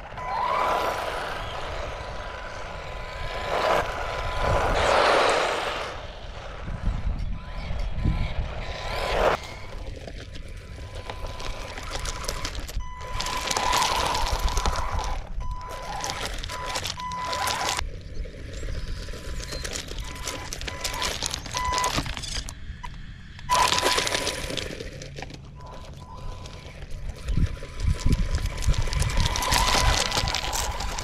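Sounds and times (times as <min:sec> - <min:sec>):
toy car motor whine: 0:00.0 - 0:31.0
tyres scrabbling on stones: 0:08.6 - 0:22.8, 0:23.4 - 0:31.0.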